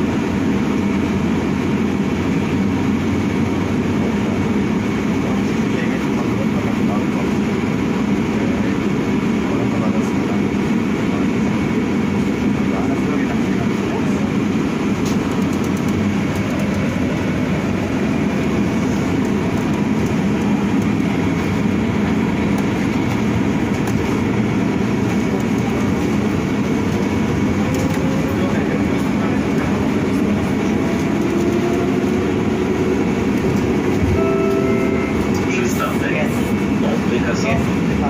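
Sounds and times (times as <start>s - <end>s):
bus rumbling on road: 0.0s - 38.0s.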